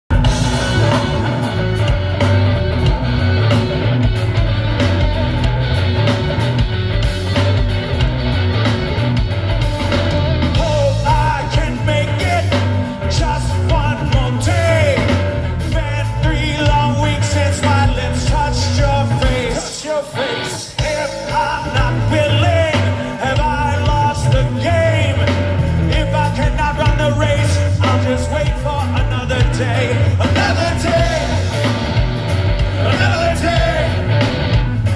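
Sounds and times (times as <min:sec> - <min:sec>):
bass guitar: 0:00.0 - 0:34.9
drums: 0:00.0 - 0:34.9
electric guitars: 0:00.1 - 0:34.9
lead vocal singing: 0:10.4 - 0:34.9.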